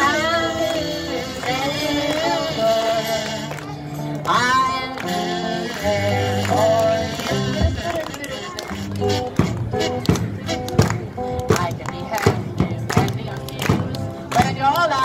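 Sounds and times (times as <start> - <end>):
person singing: 0.0 - 8.0
drums: 8.8 - 15.0.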